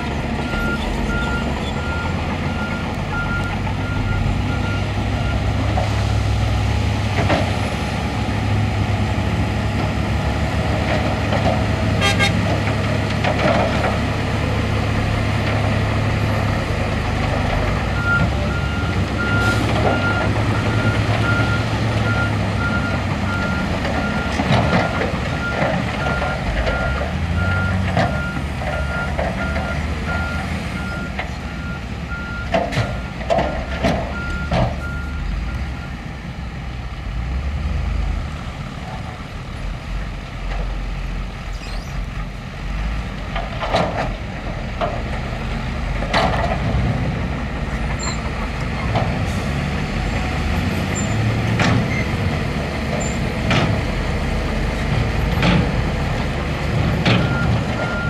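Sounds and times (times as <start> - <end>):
diesel engines rumbling: 0.0 - 58.0
reversing alarm beeping: 0.4 - 5.5, 18.0 - 32.5, 57.2 - 58.0.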